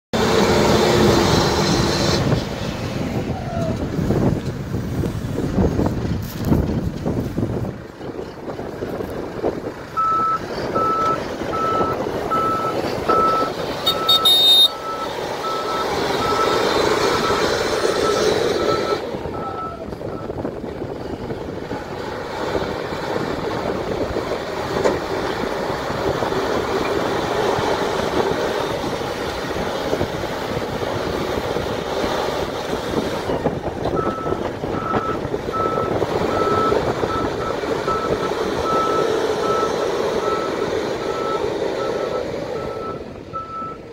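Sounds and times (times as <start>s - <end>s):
diesel engine revving: 0.1s - 43.9s
reversing alarm beeps: 10.0s - 17.4s, 34.0s - 43.8s.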